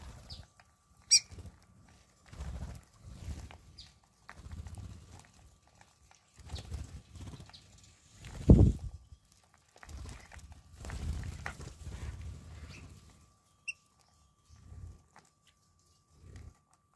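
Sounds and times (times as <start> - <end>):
birds wing-flapping: 1.1 - 8.9, 9.8 - 13.2.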